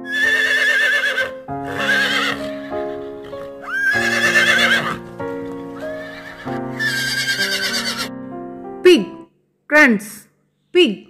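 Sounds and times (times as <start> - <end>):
horse neighing: 0.0 - 8.1
background music: 0.0 - 10.2.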